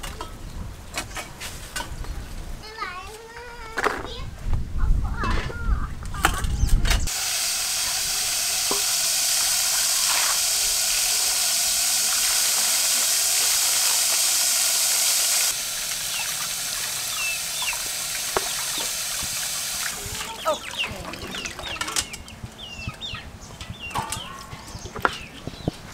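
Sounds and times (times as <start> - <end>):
tap water pouring into bowl: 7.1 - 22.0.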